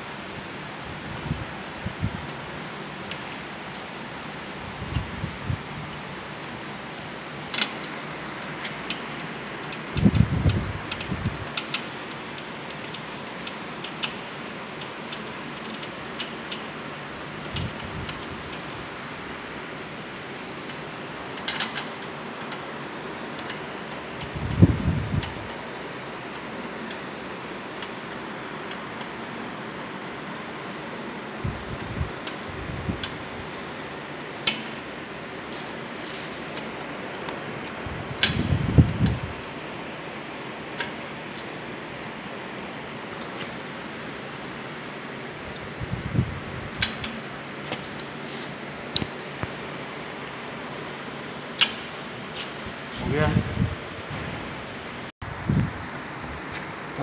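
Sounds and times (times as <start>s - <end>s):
spanner clicking on bolts: 8.6s - 16.7s, 20.6s - 23.6s.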